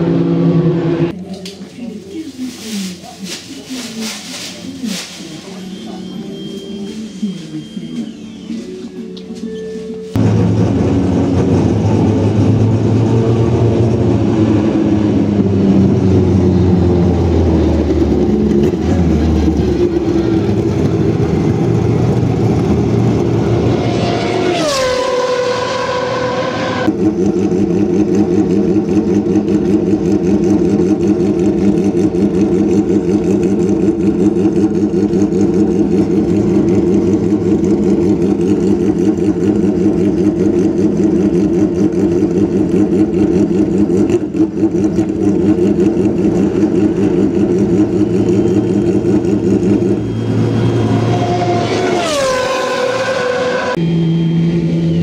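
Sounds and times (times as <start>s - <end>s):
racing car engine revving: 10.2s - 55.0s
racing car engine idling: 26.9s - 50.6s.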